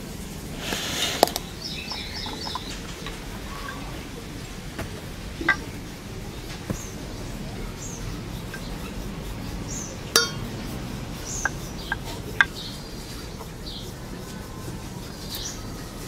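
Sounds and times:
small birds chirping: 0:00.8 - 0:16.0
sharp ringing clink: 0:10.2 - 0:10.6.

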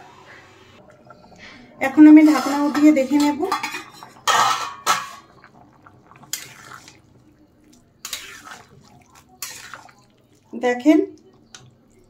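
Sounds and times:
curry bubbling: 0:00.8 - 0:12.0
metal spatula scraping pan: 0:02.0 - 0:05.3, 0:06.3 - 0:07.0, 0:08.0 - 0:10.1.

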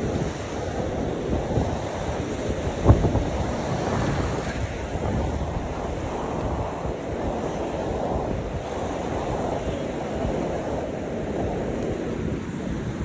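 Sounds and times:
sea waves washing onto beach: 0:00.0 - 0:13.0
wind rumbling on microphone: 0:00.0 - 0:13.0.

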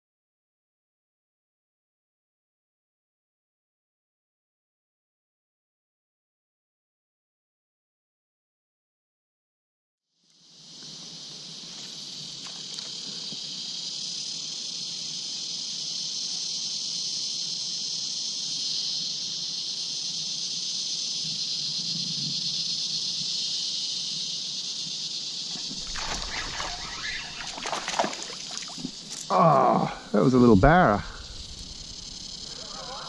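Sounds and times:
insects chorus: 0:10.1 - 0:33.0
fish splashing at water surface: 0:25.6 - 0:29.0.

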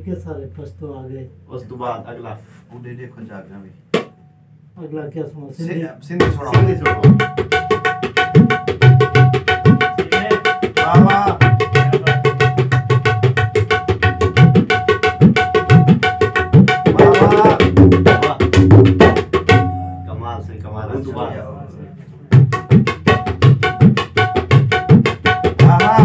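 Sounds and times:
tabla playing: 0:06.1 - 0:21.4, 0:22.3 - 0:26.0.

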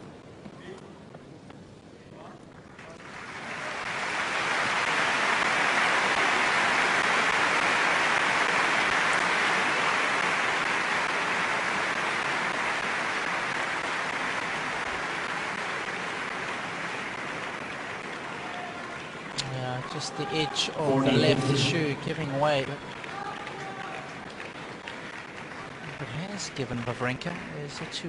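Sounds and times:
crowd applauding: 0:02.8 - 0:28.0.

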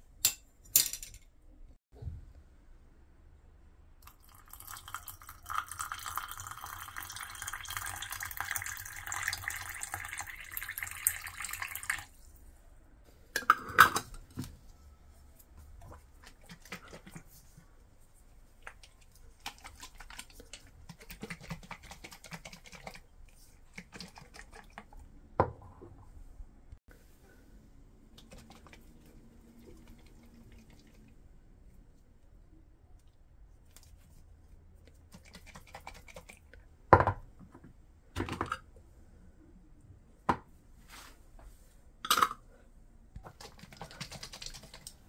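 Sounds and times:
water pouring into glass jar: 0:04.0 - 0:12.2.

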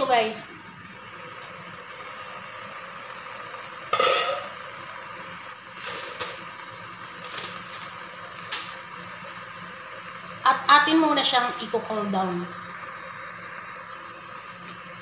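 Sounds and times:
glass lid clatter: 0:04.0 - 0:04.5
aluminium foil crinkling: 0:07.2 - 0:07.9.

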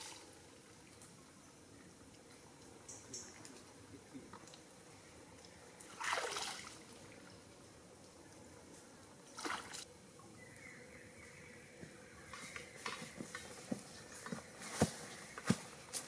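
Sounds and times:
stream water splashing: 0:05.8 - 0:07.4, 0:09.3 - 0:09.9.

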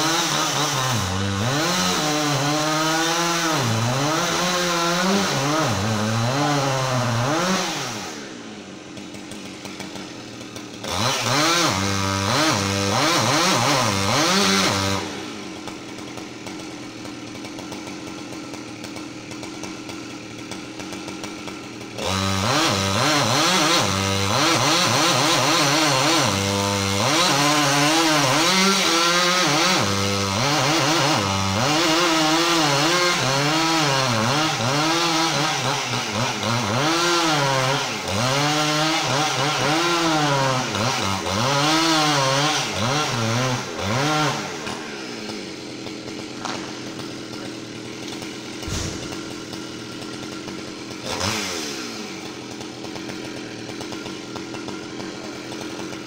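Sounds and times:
chainsaw cutting tree trunk: 0:00.0 - 0:56.0.

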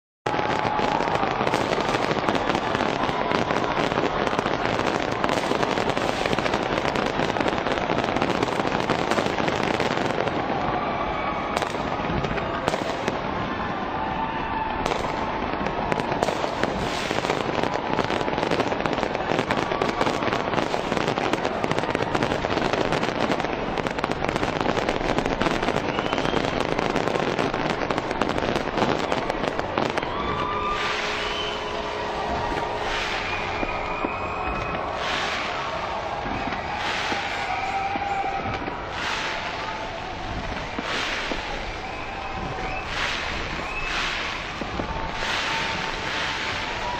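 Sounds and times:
fireworks crackling and popping: 0:00.2 - 0:46.9.

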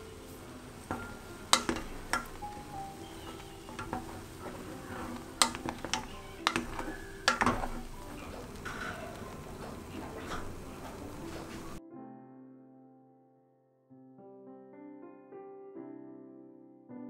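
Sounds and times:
soup bubbling: 0:00.0 - 0:11.8
wooden spoon knocking on pot: 0:00.0 - 0:11.8.

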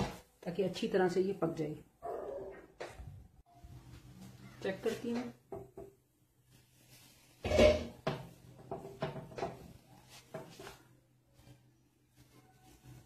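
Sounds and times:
kitchenware knock: 0:07.4 - 0:09.6.

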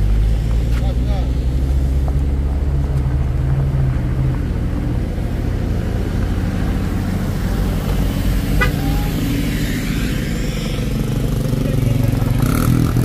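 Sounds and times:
truck engine low rumble: 0:00.0 - 0:13.0.

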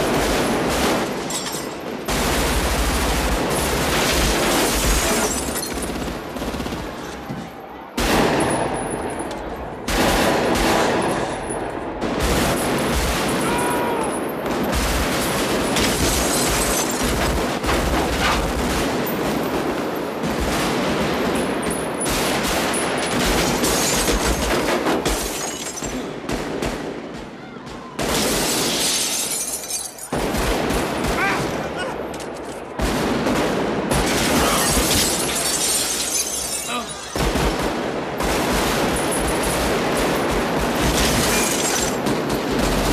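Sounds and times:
bullets striking metal and glass: 0:01.0 - 0:02.2, 0:03.6 - 0:06.0, 0:15.6 - 0:20.2, 0:21.3 - 0:26.1, 0:28.4 - 0:30.2, 0:34.0 - 0:37.4, 0:38.8 - 0:42.6.

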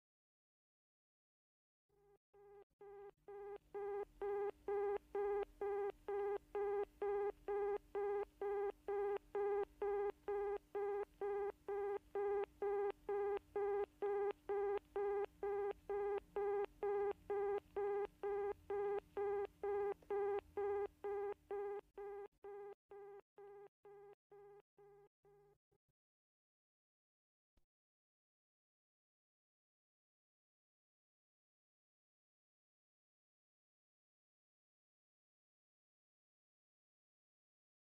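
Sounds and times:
telephone busy signal beeps: 0:02.9 - 0:24.9.

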